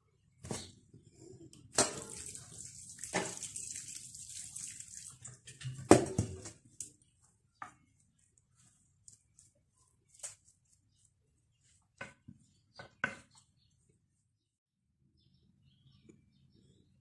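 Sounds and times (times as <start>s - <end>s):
water pouring from kettle: 1.8s - 6.4s.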